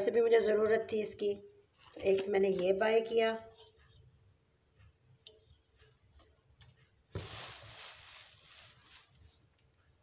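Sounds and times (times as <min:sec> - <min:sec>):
plastic wrapping rustling: 0:07.1 - 0:09.6.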